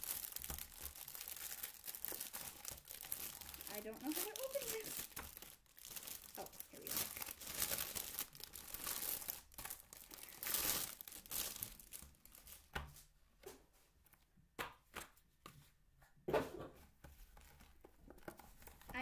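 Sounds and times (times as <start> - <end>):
plastic bag tearing and crinkling: 0.0 - 12.7.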